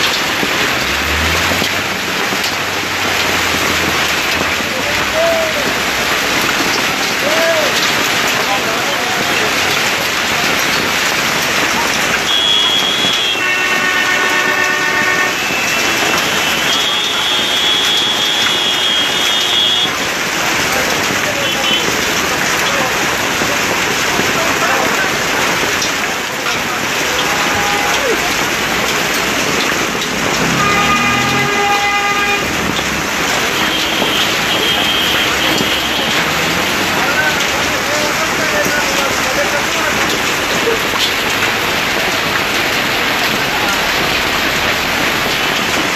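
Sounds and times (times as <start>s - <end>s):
hail and rain falling hard: 0.0s - 45.9s
vehicle horn: 12.2s - 20.0s, 30.2s - 36.4s.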